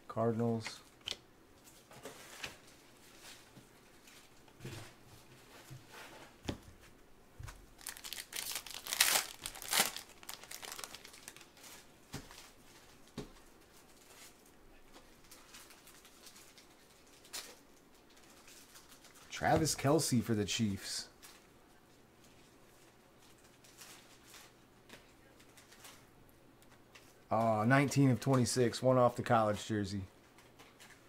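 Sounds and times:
foil wrapper tearing and crinkling: 0:07.8 - 0:11.6.

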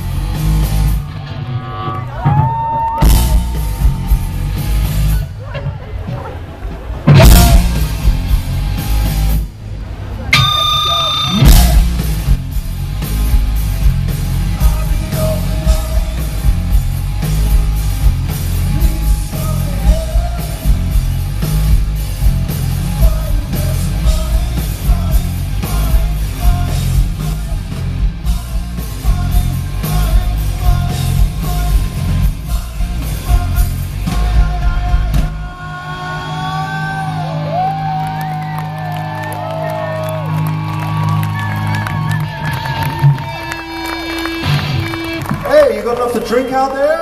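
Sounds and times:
heavy bass: 0:00.0 - 0:46.6
drums: 0:00.0 - 0:47.0
electric guitar: 0:10.3 - 0:46.3
man singing lead vocal: 0:14.4 - 0:16.5, 0:18.6 - 0:20.9, 0:22.8 - 0:37.4.

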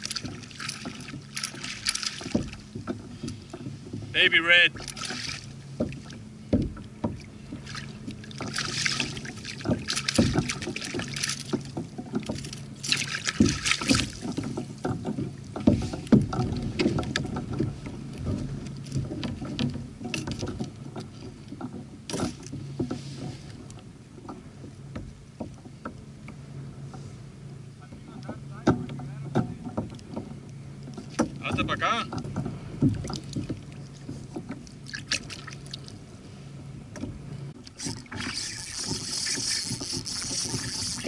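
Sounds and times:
knocks against kayak hull: 0:00.0 - 0:23.6, 0:27.8 - 0:35.6.

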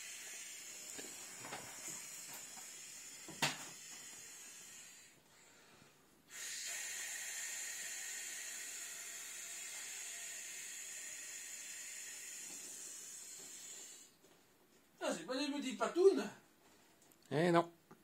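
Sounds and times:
person blowing into inflatable: 0:00.0 - 0:05.2, 0:06.3 - 0:14.2.

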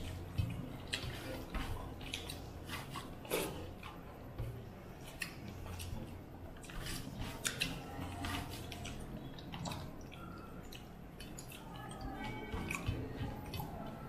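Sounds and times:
fingers mixing food on steel plates: 0:00.0 - 0:14.0
low steady hum: 0:00.0 - 0:14.0
people chewing: 0:00.0 - 0:14.0.

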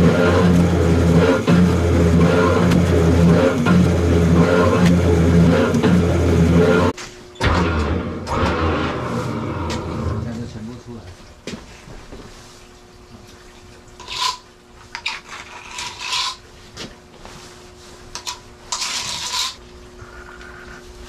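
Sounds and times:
steady hum: 0:00.0 - 0:14.9, 0:16.3 - 0:21.0
short noisy scrapes: 0:06.6 - 0:10.2.

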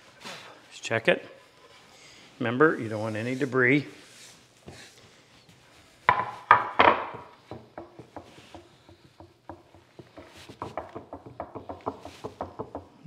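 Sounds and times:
wooden board knocking on workbench: 0:06.1 - 0:12.9
board clacking on benchtop: 0:06.1 - 0:13.0.

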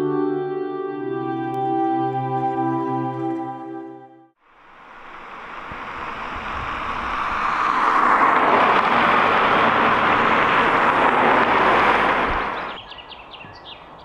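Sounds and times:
road traffic rushing: 0:04.4 - 0:14.0.

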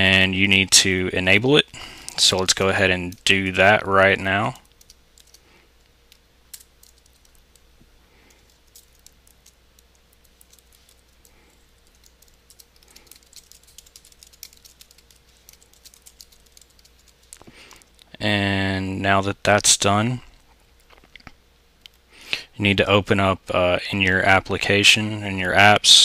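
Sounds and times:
keyboard keys clicking: 0:08.3 - 0:17.5.

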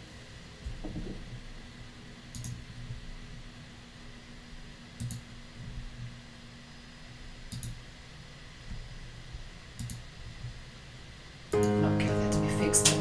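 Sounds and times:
low steady hum: 0:00.0 - 0:13.0
faint double clicks: 0:07.5 - 0:07.8, 0:09.8 - 0:10.0.

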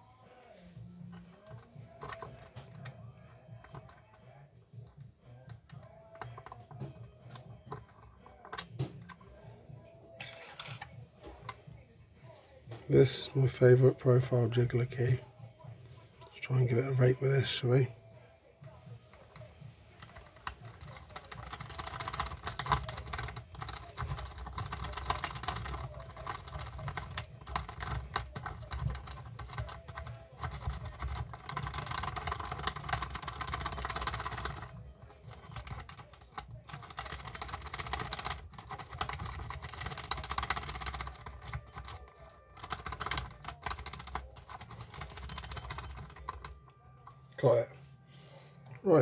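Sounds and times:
key raking in a lock: 0:10.2 - 0:11.0, 0:20.0 - 0:46.6.

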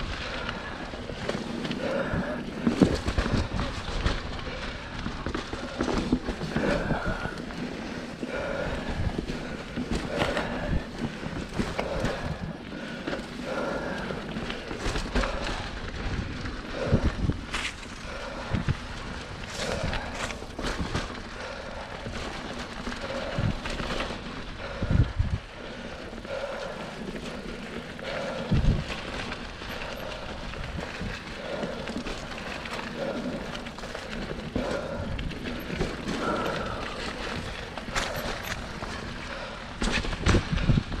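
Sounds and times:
mountain bike tyre and frame rattle: 0:00.0 - 0:41.0
bike knocking over bumps: 0:25.8 - 0:41.0.

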